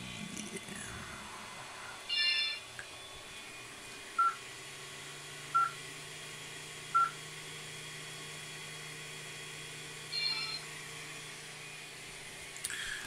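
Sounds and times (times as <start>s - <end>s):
low machine hum: 0.0s - 13.0s
touchscreen beeps: 10.2s - 10.6s.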